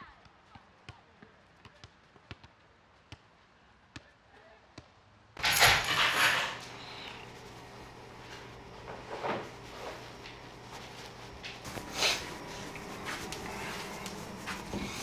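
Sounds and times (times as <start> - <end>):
loud rustling clatter: 5.4 - 15.0
low steady hum: 5.4 - 15.0.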